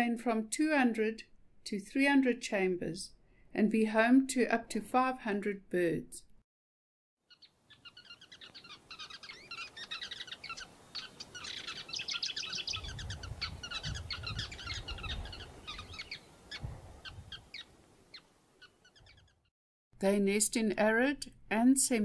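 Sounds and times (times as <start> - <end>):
weaver birds chattering: 7.3 - 19.4.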